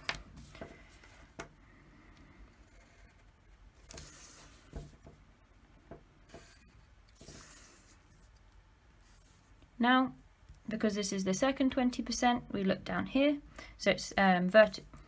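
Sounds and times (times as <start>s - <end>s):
pencil scratching on paper: 2.5s - 4.8s.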